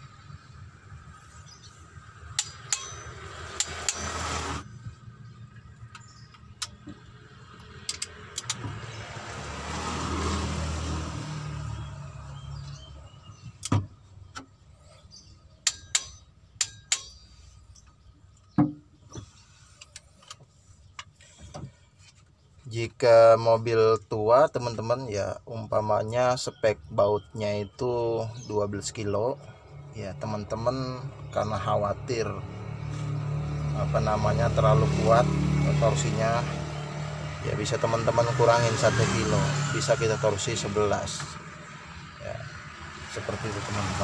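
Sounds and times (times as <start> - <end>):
metallic clicks of hand tools: 2.4 - 4.1, 7.8 - 8.6, 15.6 - 17.2.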